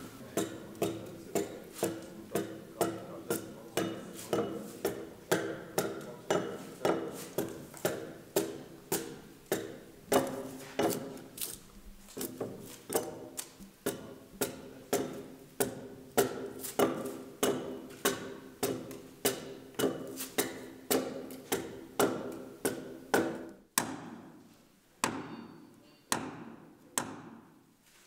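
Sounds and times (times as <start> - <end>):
axe chopping log: 3.4 - 11.2, 12.2 - 24.3.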